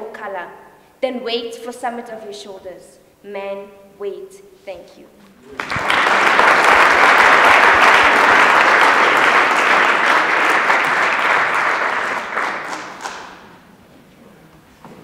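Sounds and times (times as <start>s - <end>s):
audience applauding: 5.5s - 13.6s.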